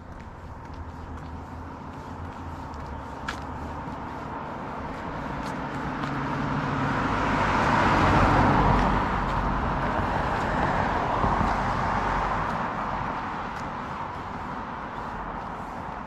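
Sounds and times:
car driving past: 2.3s - 13.3s.

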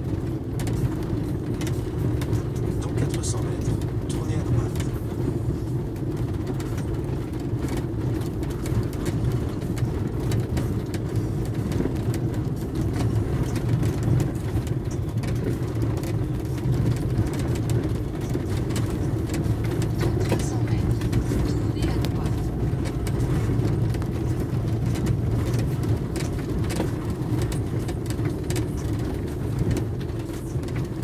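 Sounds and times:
vehicle engine running: 0.0s - 31.0s.

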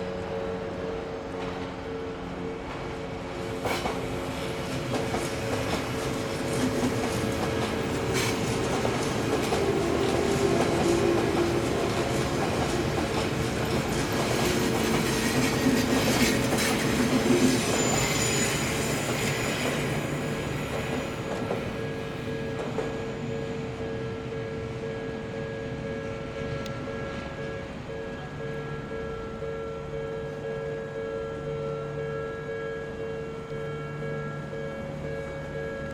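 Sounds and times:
train wheels clattering: 3.6s - 23.4s
level crossing warning bell: 4.7s - 35.9s
high wheel squeal: 14.3s - 22.2s.

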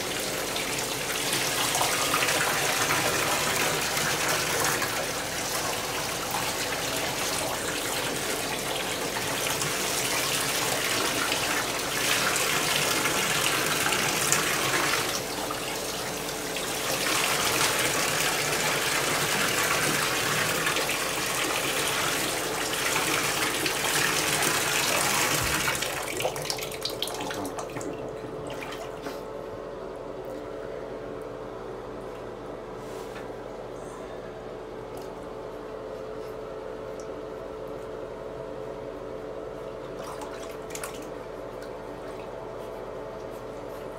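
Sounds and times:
water running into bathtub: 0.0s - 29.2s, 39.8s - 42.6s.

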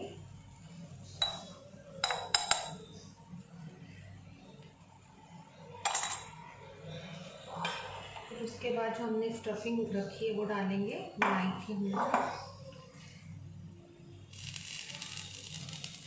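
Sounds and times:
metal spoon clinking: 1.2s - 2.8s, 5.8s - 6.4s.

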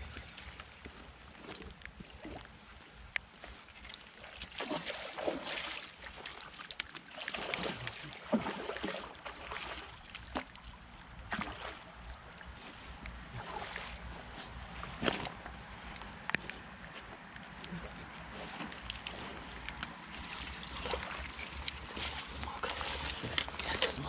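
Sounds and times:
water splashing: 3.3s - 14.1s, 17.4s - 24.0s.

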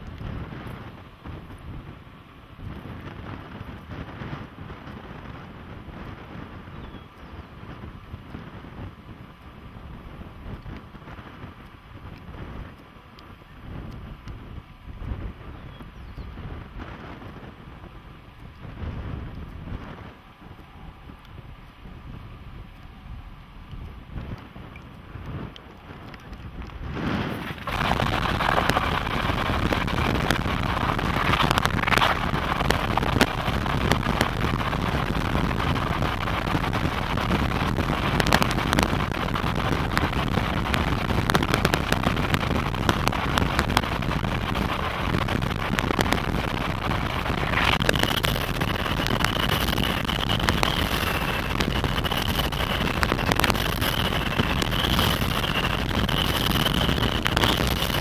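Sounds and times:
wind rushing past window: 0.0s - 58.0s
car road noise: 27.2s - 58.0s.

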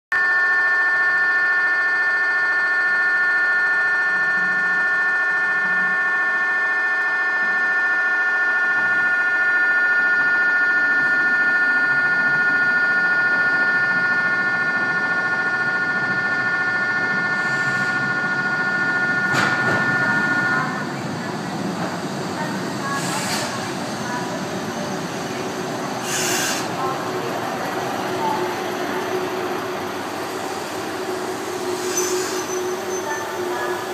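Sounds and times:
high-pitched train approach alarm: 0.1s - 33.9s
diesel railcar rumble: 13.3s - 33.9s.

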